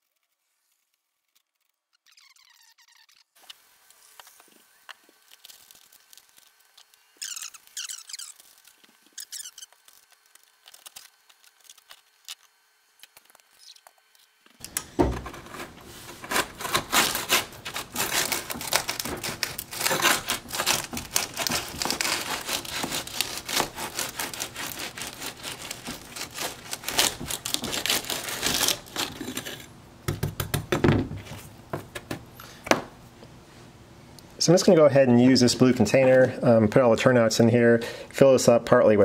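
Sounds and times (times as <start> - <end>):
putty knife scraping gritty ballast: 14.8 - 29.7.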